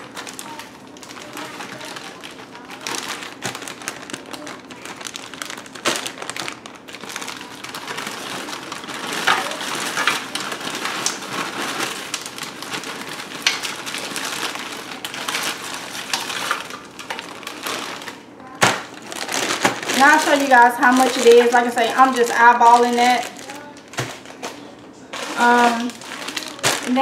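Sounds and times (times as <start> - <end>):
frozen vegetables rattling into pot: 0.0 - 27.0
plastic bag crinkling: 0.0 - 27.0.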